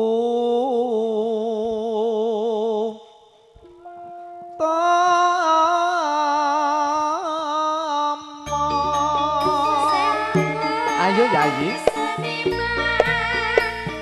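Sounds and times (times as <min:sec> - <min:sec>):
band music with held melody notes: 0:08.5 - 0:14.0.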